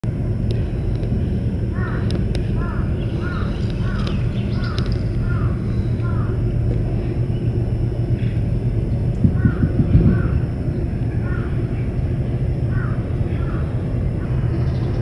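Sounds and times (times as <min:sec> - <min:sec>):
low rumble with hum: 0:00.0 - 0:15.0
crow cawing: 0:01.7 - 0:06.4, 0:09.3 - 0:10.4, 0:11.2 - 0:11.8, 0:12.6 - 0:14.9.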